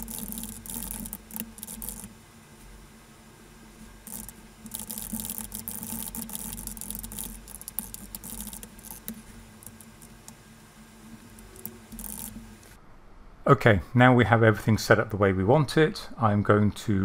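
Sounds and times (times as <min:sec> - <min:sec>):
keyboard typing: 0:00.0 - 0:02.1, 0:04.1 - 0:10.4, 0:11.3 - 0:12.8
low steady hum: 0:00.0 - 0:17.0.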